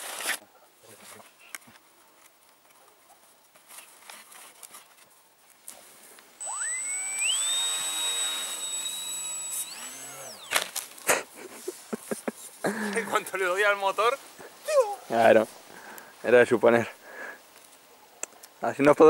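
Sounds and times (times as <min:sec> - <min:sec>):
model plane motor whine: 0:06.4 - 0:10.8.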